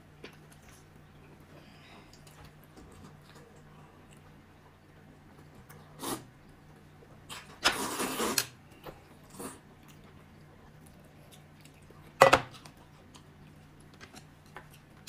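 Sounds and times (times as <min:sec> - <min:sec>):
person slurping from a bowl: 0:07.8 - 0:08.4.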